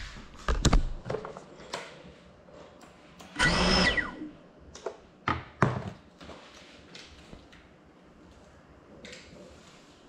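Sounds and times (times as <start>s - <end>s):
drone motors whining: 3.4s - 4.4s.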